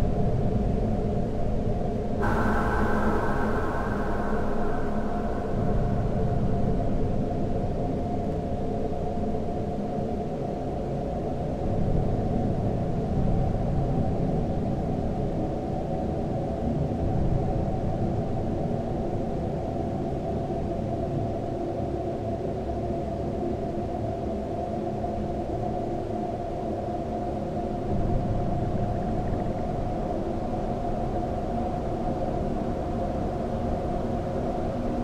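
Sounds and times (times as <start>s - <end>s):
sustained tones: 2.2s - 7.2s
low rumbling drone: 2.2s - 8.3s.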